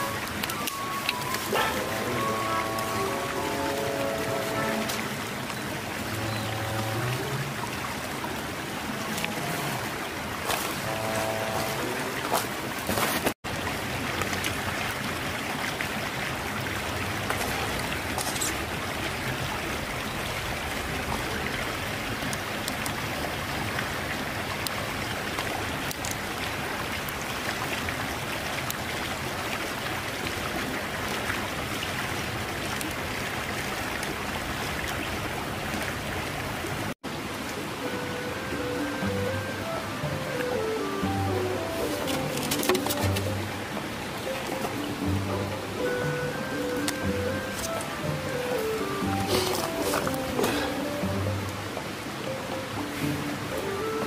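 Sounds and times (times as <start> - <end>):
river flowing over stones: 0.0 - 54.0.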